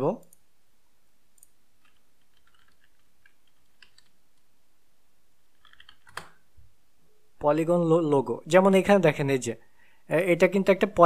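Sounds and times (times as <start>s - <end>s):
faint keyboard typing: 1.3s - 4.5s, 5.5s - 6.4s.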